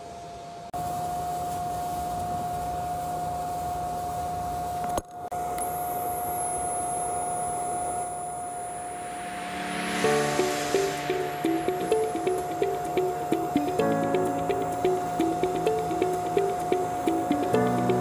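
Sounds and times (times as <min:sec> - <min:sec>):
swell of noise: 0:08.6 - 0:18.0.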